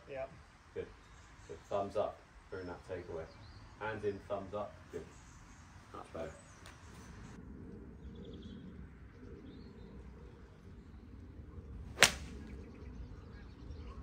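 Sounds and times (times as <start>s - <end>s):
golf club striking ball: 11.9s - 12.5s.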